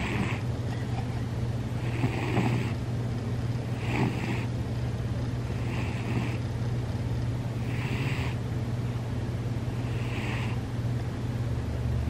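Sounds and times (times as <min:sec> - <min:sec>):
cat snoring: 0:00.0 - 0:00.4, 0:01.8 - 0:02.8, 0:03.7 - 0:04.5, 0:05.5 - 0:06.4, 0:07.6 - 0:08.4, 0:09.7 - 0:10.6.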